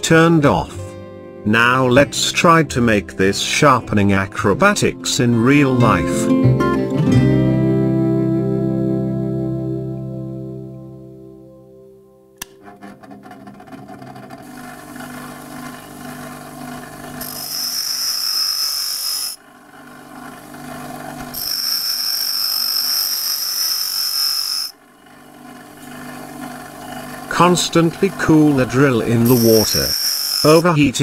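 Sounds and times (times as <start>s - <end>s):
grinder motor hum: 12.4s - 31.0s
drill bit grinding on wheel: 13.4s - 31.0s.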